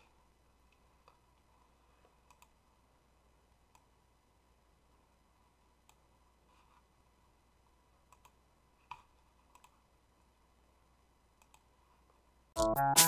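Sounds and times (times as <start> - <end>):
faint sharp clicks: 11.4 - 11.7.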